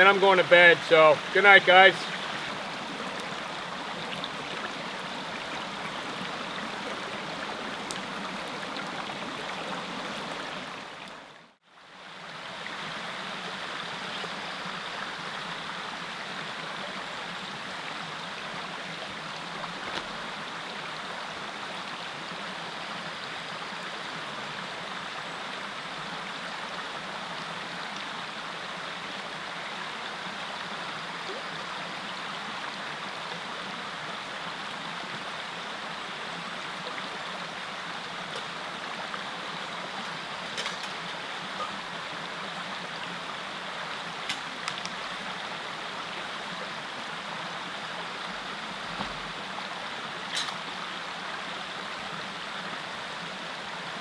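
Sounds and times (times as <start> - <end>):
creek rushing over rocks: 0.0 - 54.0.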